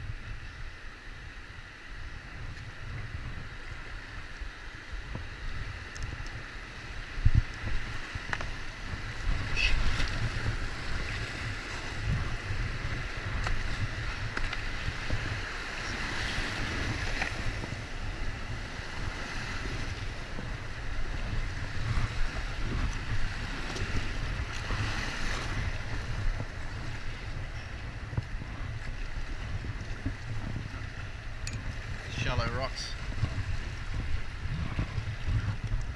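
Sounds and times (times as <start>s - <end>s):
wind rumbling on microphone: 0.0s - 35.9s
rushing whitewater: 30.6s - 34.8s.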